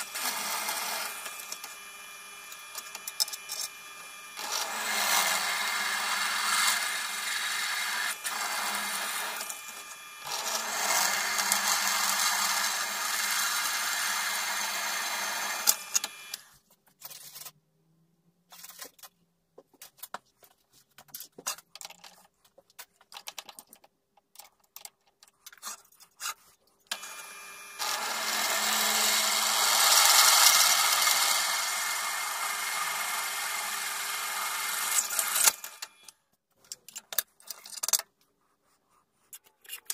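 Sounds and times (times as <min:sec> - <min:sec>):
drill press cutting metal: 0:00.0 - 0:16.4, 0:26.9 - 0:36.1.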